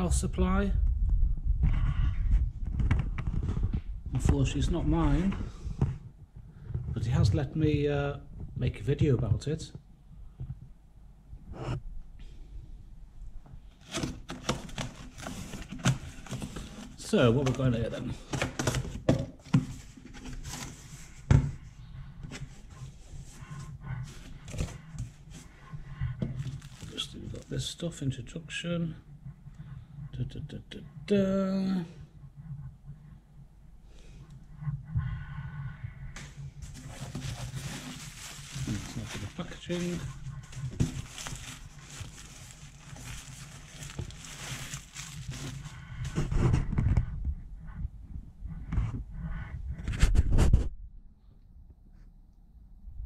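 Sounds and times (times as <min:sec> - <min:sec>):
cardboard rustling: 0:13.7 - 0:28.0, 0:36.2 - 0:47.1.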